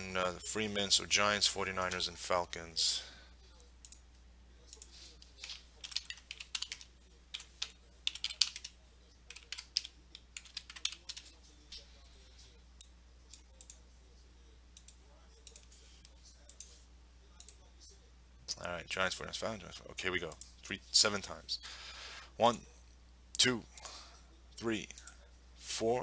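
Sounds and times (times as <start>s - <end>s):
typing on keyboard: 5.4s - 8.7s, 9.3s - 11.3s.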